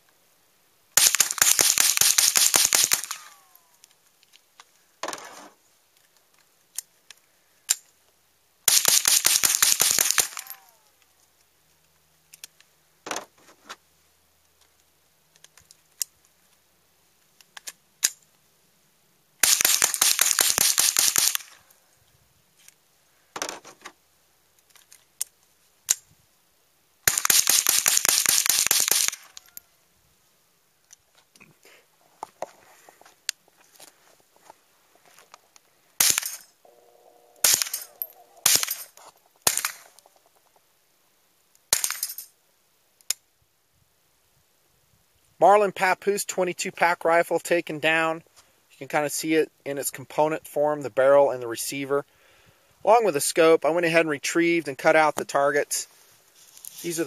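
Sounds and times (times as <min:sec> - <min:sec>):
rifle shots fired rapidly: 0:01.0 - 0:03.3, 0:08.7 - 0:10.6, 0:19.4 - 0:21.6, 0:27.1 - 0:29.2, 0:37.4 - 0:38.8.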